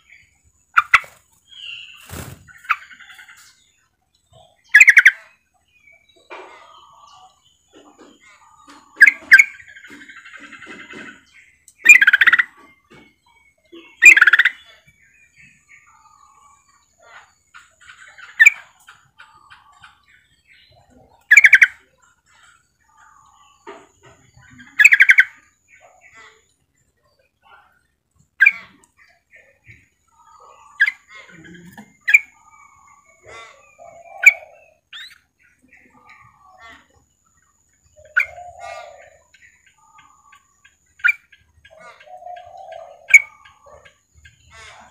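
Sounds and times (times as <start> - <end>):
bird chattering calls: 0.0 - 3.6, 4.6 - 5.3, 7.8 - 12.6, 13.7 - 14.7, 21.2 - 21.8, 23.1 - 26.5, 28.4 - 37.0, 37.9 - 44.9.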